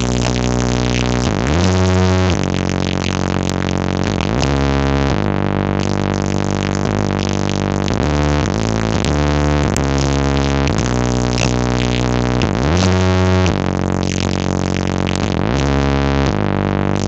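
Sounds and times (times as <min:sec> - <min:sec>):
loud music with heavy bass: 0:00.0 - 0:17.0.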